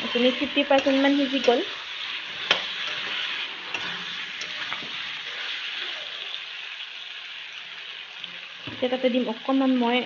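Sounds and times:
spatula scraping pan: 0.0 - 6.3
food sizzling in oil: 0.0 - 10.0.

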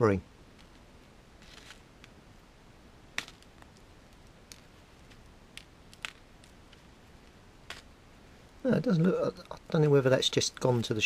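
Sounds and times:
faint scratching: 0.6 - 2.0.

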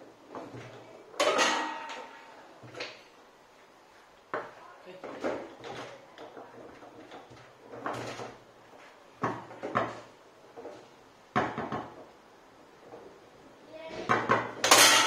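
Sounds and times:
foosball ball knocking: 11.3 - 12.1, 14.1 - 15.0
foosball rods clacking: 14.1 - 15.0.

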